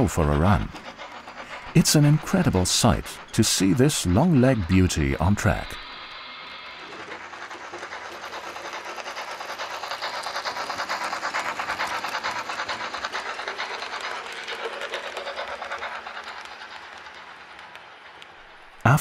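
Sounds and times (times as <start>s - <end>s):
model train wheels clicking on rails: 0.0s - 19.0s.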